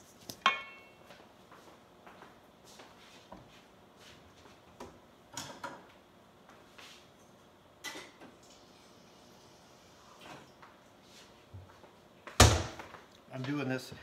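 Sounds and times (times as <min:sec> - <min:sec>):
faint kitchen knocks and clicks: 0:04.7 - 0:06.0, 0:07.2 - 0:08.4.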